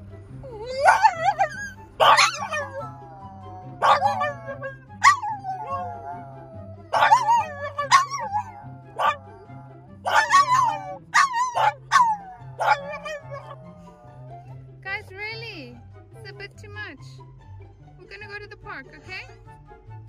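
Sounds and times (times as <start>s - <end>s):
background music: 0.0s - 20.0s
dogs howling and yipping: 0.4s - 14.6s.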